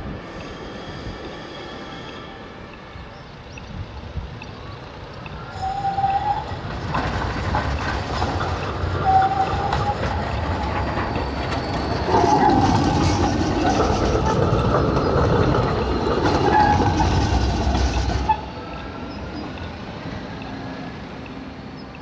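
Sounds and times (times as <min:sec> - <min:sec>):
tram wheels rumbling on rail: 0:00.0 - 0:22.0
high wheel squeals: 0:00.2 - 0:02.5.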